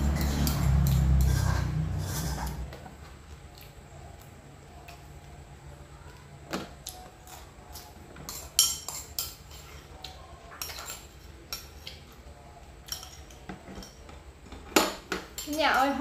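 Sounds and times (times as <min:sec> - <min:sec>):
metal spoon scraping a rice bowl: 0:00.0 - 0:02.8.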